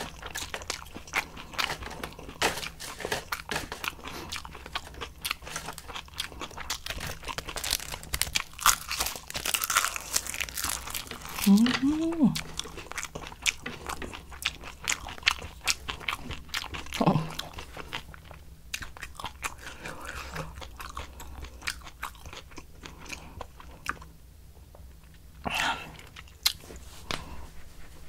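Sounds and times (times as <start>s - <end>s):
crunchy chewing: 0.0s - 24.2s, 25.8s - 27.9s
person humming: 11.4s - 12.4s.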